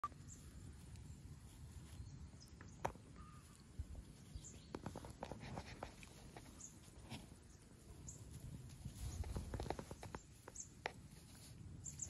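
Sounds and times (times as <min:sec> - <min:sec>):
rustling in grass: 0:00.0 - 0:12.0
wind rumble on microphone: 0:08.0 - 0:10.5
small ticks: 0:08.1 - 0:12.0.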